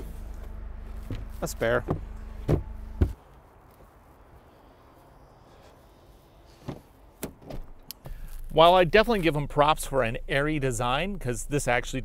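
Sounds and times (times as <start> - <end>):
heavy thumps: 0.0 - 3.2
faint outdoor background noise: 0.0 - 12.0.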